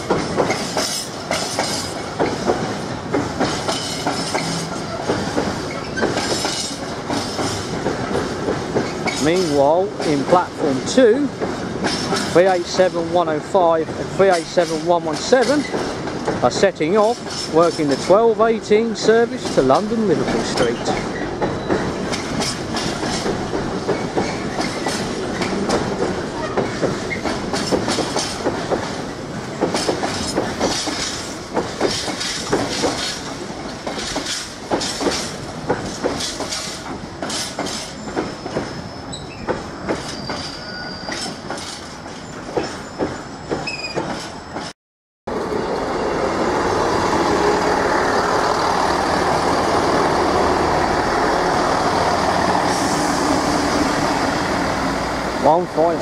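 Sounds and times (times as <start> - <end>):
diesel train engine and rolling: 0.0 - 44.7, 45.3 - 56.0
train wheels clattering over rail joints: 0.0 - 44.7
high wheel squeal: 37.8 - 41.4, 42.2 - 44.6.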